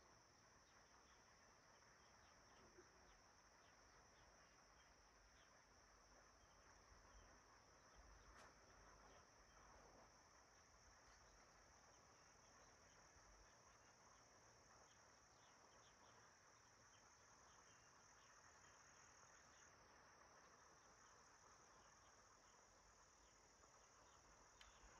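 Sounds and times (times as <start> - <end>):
soft background hiss: 0.0 - 24.9.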